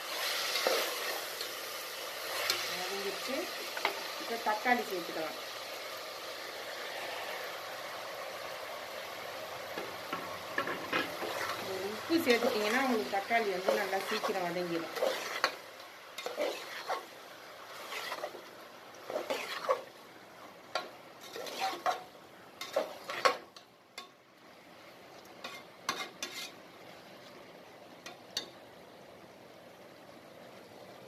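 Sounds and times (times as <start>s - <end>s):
food sizzling: 0.0s - 29.4s
ladle scraping and clinking pot: 10.1s - 11.6s, 15.0s - 15.6s, 16.2s - 17.1s, 17.7s - 18.4s, 19.1s - 19.9s, 20.8s - 23.4s, 25.4s - 26.6s.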